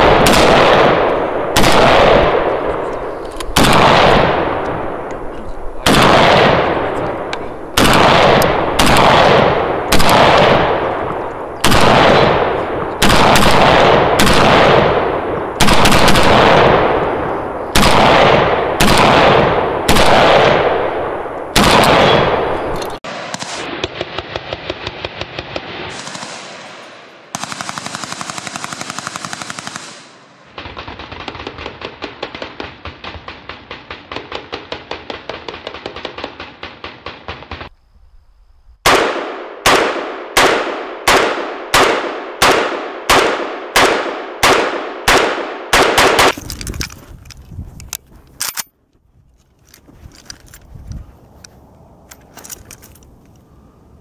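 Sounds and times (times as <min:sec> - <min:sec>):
full-automatic gunfire bursts: 0:00.0 - 0:02.8, 0:03.5 - 0:05.0, 0:05.8 - 0:07.0, 0:07.8 - 0:37.7, 0:38.8 - 0:46.4
gunshots with echo: 0:00.0 - 0:37.7, 0:38.8 - 0:46.4.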